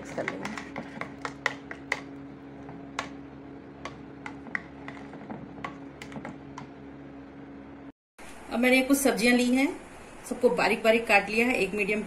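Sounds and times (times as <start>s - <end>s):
spoon tapping bowl: 0.2s - 2.2s.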